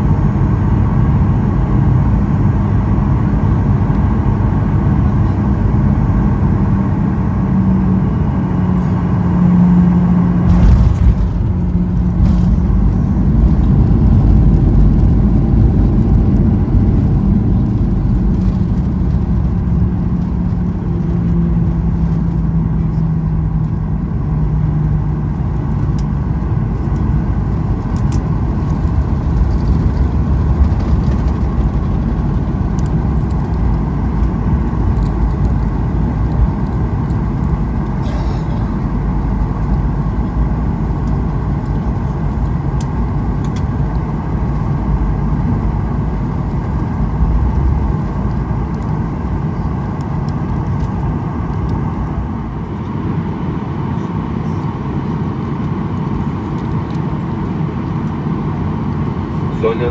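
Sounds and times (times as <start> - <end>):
aircraft cabin rumble on landing: 0.0 - 59.9.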